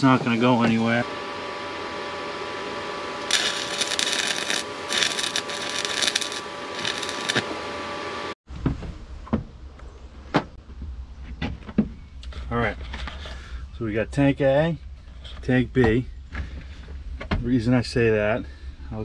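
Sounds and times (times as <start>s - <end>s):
steady electrical hum: 1.3s - 8.4s
arc welder crackling hiss: 3.2s - 7.6s.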